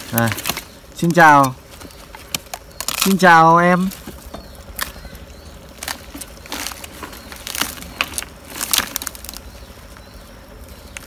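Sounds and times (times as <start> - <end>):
dry fibre tearing and crunching: 1.4 - 9.5.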